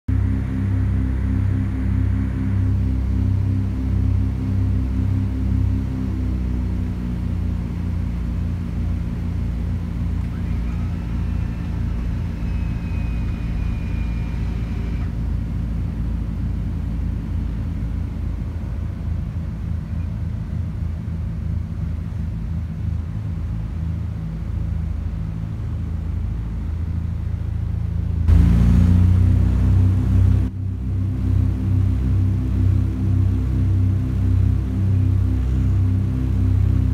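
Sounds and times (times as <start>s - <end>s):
propeller aircraft engines droning: 0.1s - 36.9s.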